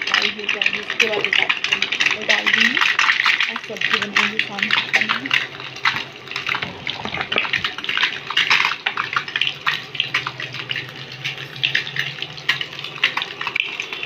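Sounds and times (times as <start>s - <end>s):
hot oil sizzling and crackling: 0.0s - 14.0s.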